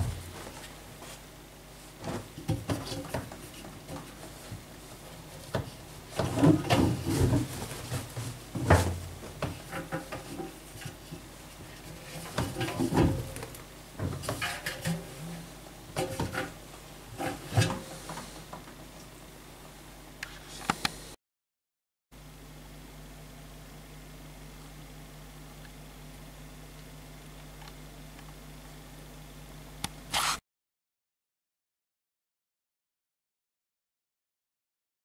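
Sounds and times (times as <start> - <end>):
cloth rustling against metal drum: 0.0 - 18.5.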